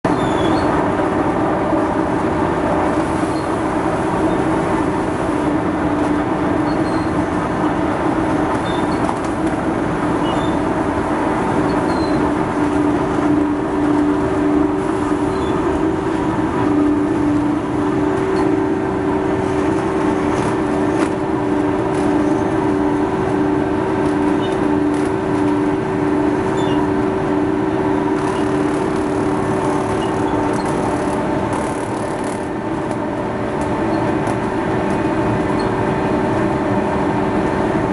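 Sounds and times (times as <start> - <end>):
textile tearing machine running: 18.8 - 35.3.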